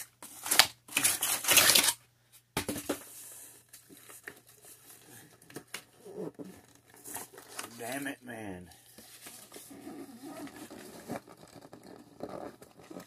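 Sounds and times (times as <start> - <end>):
cardboard and paper packing rustling: 2.6 - 13.0.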